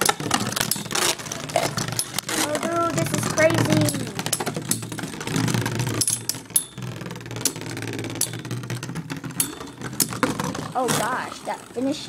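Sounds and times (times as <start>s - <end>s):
tops clacking together: 0.0s - 11.4s
spinning tops whirring: 0.0s - 12.0s.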